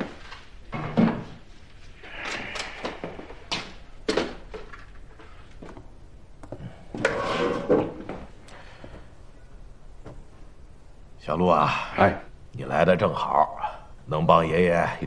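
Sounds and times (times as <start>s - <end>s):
rustling scrape: 7.1s - 8.1s.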